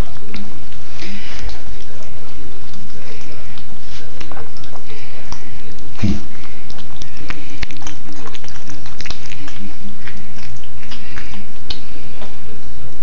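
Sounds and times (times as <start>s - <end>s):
kittens chewing and smacking: 0.0s - 13.0s.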